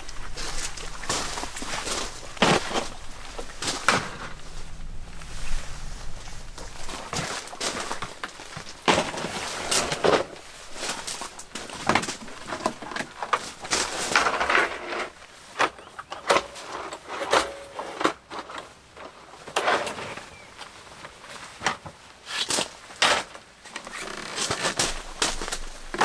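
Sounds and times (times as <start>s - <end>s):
short scraping on gravel: 0.0s - 16.0s, 23.9s - 26.0s.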